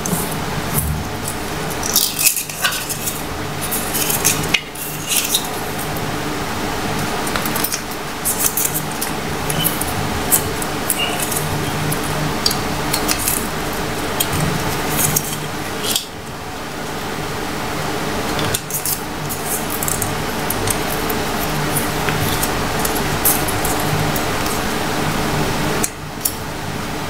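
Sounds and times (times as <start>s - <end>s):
steady low hum: 0.0s - 27.0s
paper banknote crinkling: 1.2s - 6.0s.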